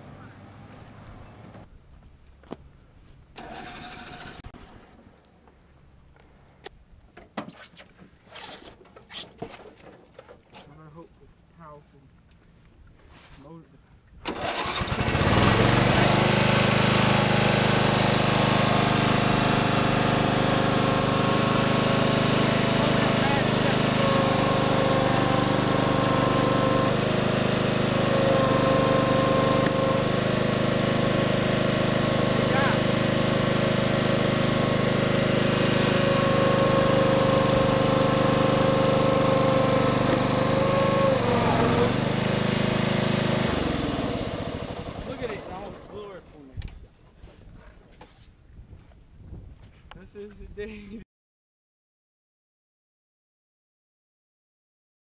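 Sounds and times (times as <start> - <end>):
outboard motor running: 14.3 - 46.1.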